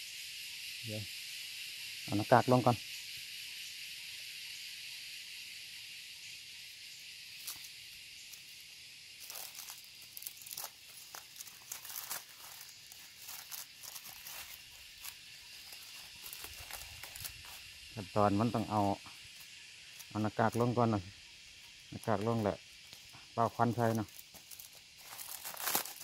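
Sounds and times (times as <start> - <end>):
steady high-pitched hiss: 0.0 - 26.0.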